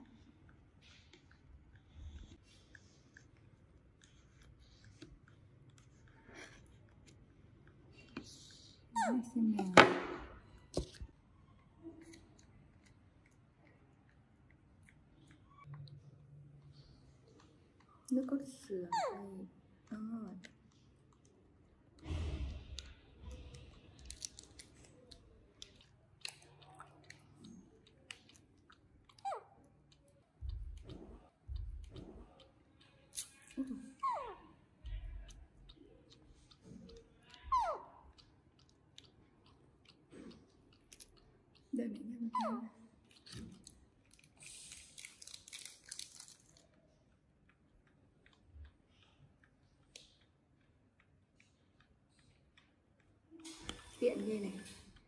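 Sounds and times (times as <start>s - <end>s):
plastic sachet crinkling: 44.0s - 46.8s.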